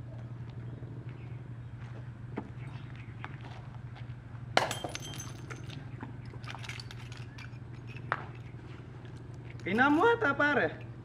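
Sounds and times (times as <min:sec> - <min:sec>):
steady low hum: 0:00.0 - 0:11.0
glass breaking: 0:04.6 - 0:05.7
glass pieces tinkling: 0:04.6 - 0:08.5.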